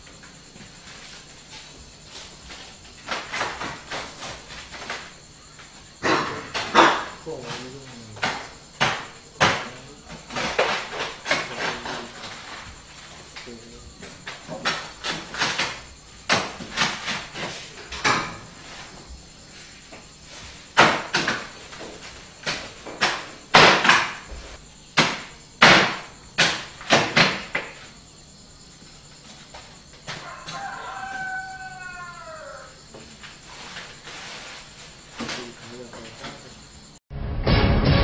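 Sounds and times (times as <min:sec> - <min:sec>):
rooster crowing: 0:30.1 - 0:33.0.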